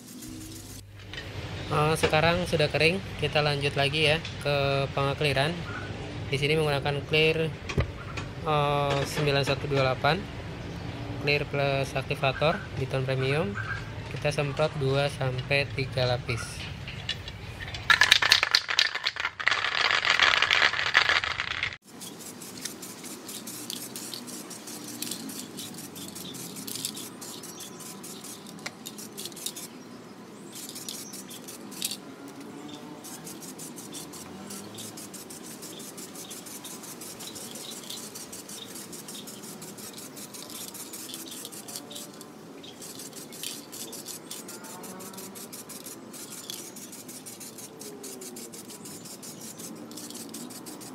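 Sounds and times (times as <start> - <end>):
spray can ball rattling: 0.0 - 0.9, 16.8 - 29.8, 30.4 - 50.9
spray can hissing: 0.0 - 0.9, 18.0 - 29.8, 30.4 - 50.9.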